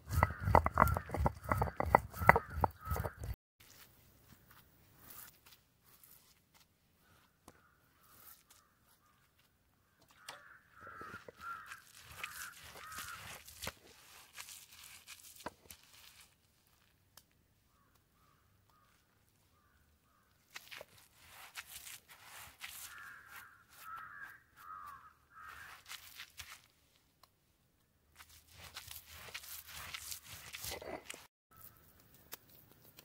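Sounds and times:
faint crows cawing: 0.1 - 3.4, 7.0 - 13.7, 17.6 - 20.5, 22.7 - 26.2.

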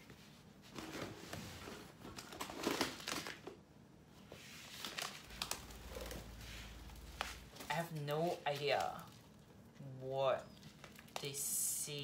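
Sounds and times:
packaging crinkling and rustling: 0.7 - 3.6, 4.6 - 9.6, 10.6 - 11.2
sharp crackles: 4.9 - 9.4.

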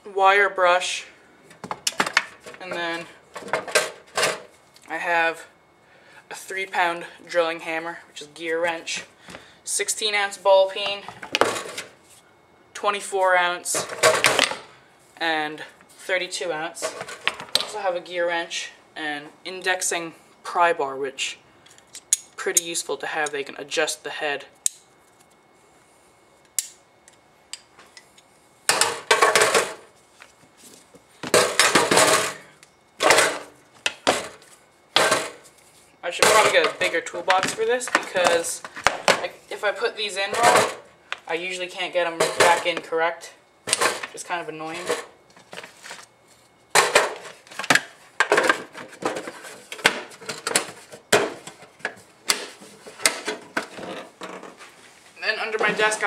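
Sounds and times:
tools clattering in metal toolbox: 31.4 - 33.4, 40.3 - 40.8, 42.2 - 42.8.

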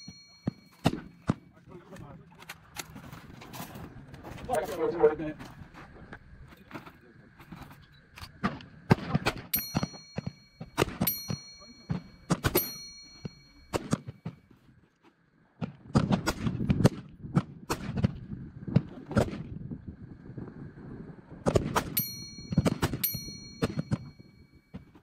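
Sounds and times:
ringing dings of steel targets: 0.0 - 1.6, 9.4 - 14.5, 21.8 - 25.0
rifle shots: 15.9 - 19.5.

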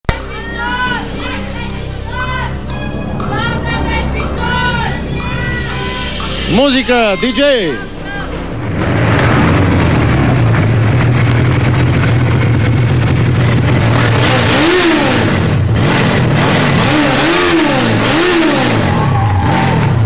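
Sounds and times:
engine idling and revving: 8.3 - 20.0.

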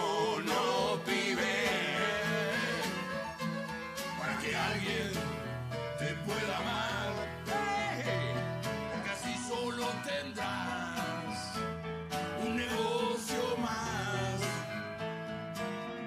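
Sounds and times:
men singing: 0.0 - 3.5, 4.1 - 14.8
piano: 0.0 - 16.0
strummed acoustic guitar: 0.0 - 16.0.

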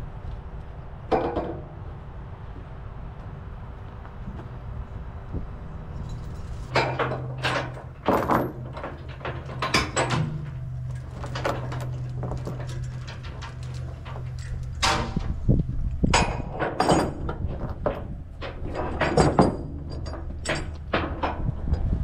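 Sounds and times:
steady low hum: 0.0 - 22.0
chains clanking on wooden deck: 6.0 - 21.9.

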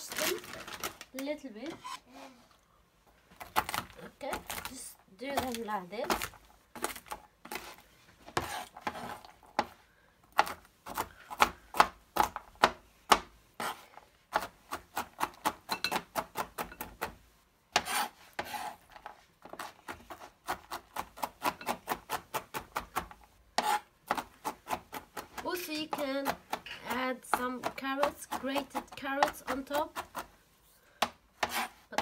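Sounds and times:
knife chopping on cutting board: 17.7 - 18.8, 31.0 - 32.0.

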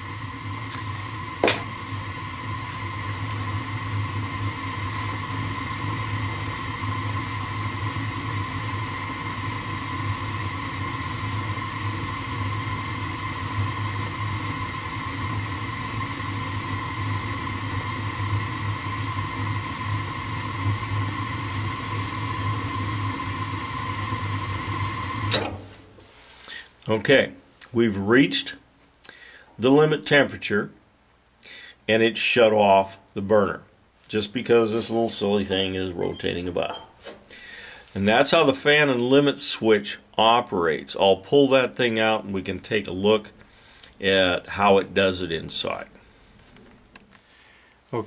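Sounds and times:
thin high whine: 0.0 - 25.7, 34.6 - 37.4
gas furnace burner rushing: 0.0 - 26.0.

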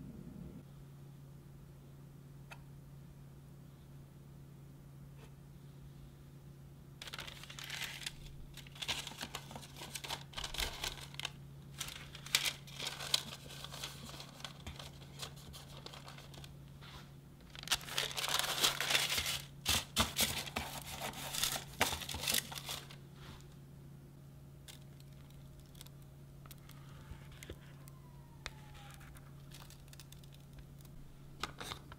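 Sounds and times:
parchment paper crinkling: 7.0 - 23.5, 24.7 - 31.9.

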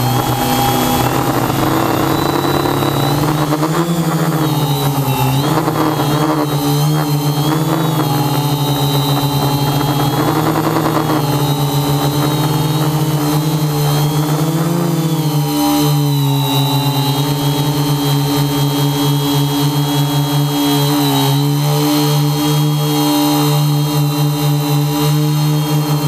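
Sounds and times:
drone motors buzzing whine: 0.0 - 26.0.

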